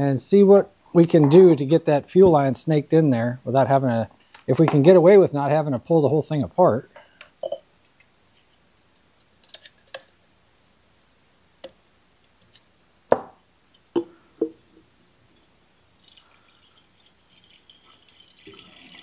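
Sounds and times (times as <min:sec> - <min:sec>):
fuel pouring into glass jar: 0:15.3 - 0:19.0.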